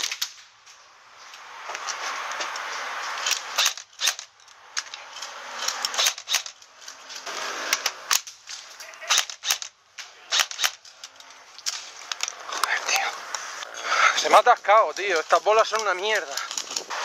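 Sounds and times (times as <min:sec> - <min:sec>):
airsoft rifle shots: 0:03.4 - 0:04.3, 0:05.7 - 0:06.6, 0:09.0 - 0:10.9.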